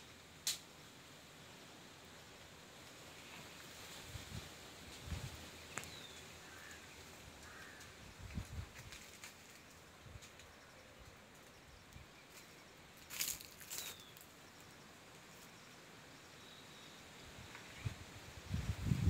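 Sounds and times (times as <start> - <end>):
crackly rustle: 2.7 - 15.6.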